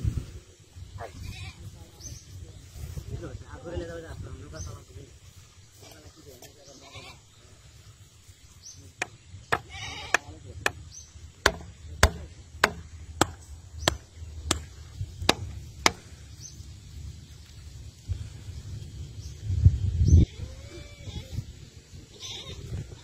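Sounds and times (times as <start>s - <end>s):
hammer knocking wooden stakes: 9.0s - 16.2s.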